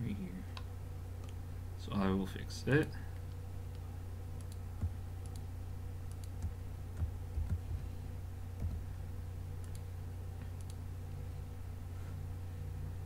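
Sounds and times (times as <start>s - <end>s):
low hum: 0.0s - 13.0s
keyboard and mouse clicks: 4.4s - 5.5s, 6.1s - 7.7s, 8.6s - 8.9s, 9.6s - 10.8s.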